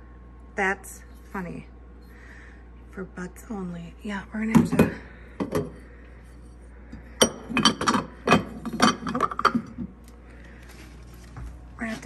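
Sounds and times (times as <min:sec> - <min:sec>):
ceramic and glass items clinking: 0:07.2 - 0:09.8.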